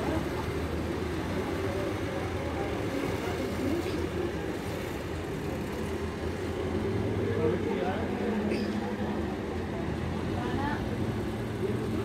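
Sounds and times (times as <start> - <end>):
crowd voices: 0.0 - 12.0
traffic hum: 0.0 - 12.0.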